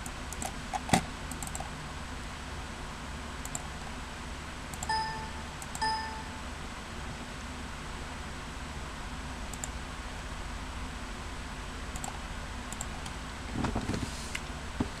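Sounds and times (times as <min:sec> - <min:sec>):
rustling and bumping: 0:13.5 - 0:14.2.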